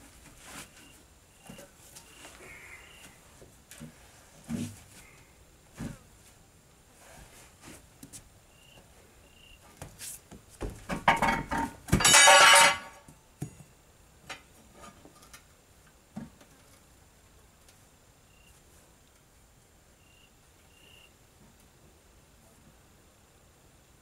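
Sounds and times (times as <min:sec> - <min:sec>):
ringing metal clang: 0:12.0 - 0:13.0.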